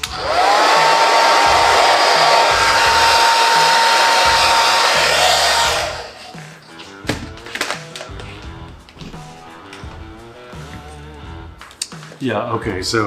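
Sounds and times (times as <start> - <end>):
hair dryer motor whine: 0.0 - 6.4.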